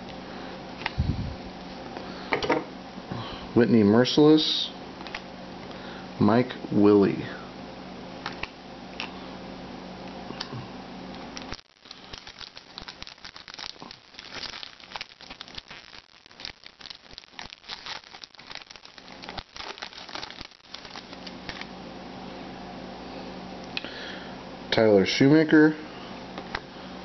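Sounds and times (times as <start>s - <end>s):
foil wrapper tearing and crinkling: 11.3s - 21.7s.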